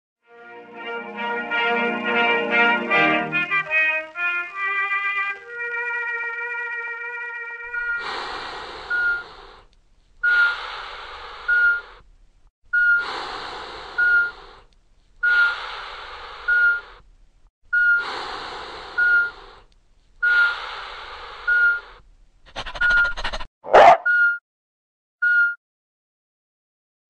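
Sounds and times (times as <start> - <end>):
heart monitor beeping: 7.7 - 9.4, 11.4 - 11.9, 12.7 - 13.1, 14.0 - 14.4, 16.4 - 16.9, 17.7 - 18.1, 19.0 - 19.4, 21.4 - 21.9, 22.5 - 24.4
breathing sound: 7.8 - 12.1, 12.8 - 17.0, 17.8 - 23.5.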